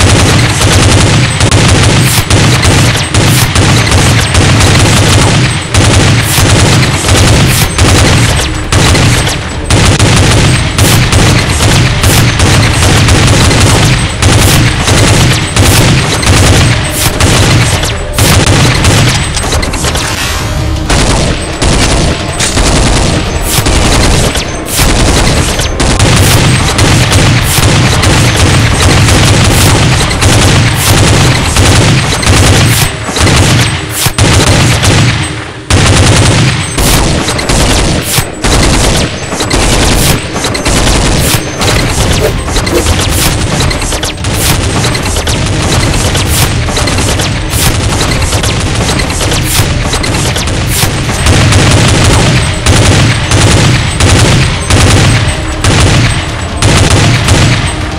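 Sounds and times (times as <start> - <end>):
rapid machine-gun fire: 0.0 - 57.9.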